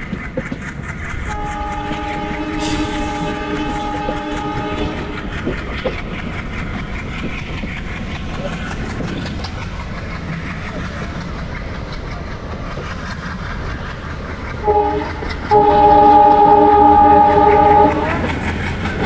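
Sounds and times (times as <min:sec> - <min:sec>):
train rumbling and rattling: 0:00.0 - 0:19.0
train horn blasts: 0:01.2 - 0:05.7, 0:14.6 - 0:18.5.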